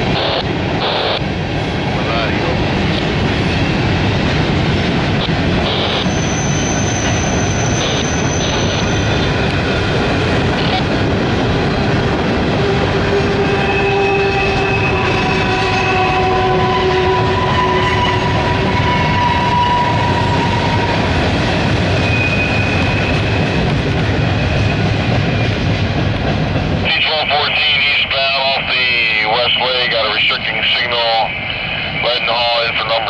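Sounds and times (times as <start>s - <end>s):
train wheels rumbling on rail: 0.0s - 33.0s
wheels squealing: 5.9s - 9.8s, 13.0s - 21.2s, 21.9s - 23.7s.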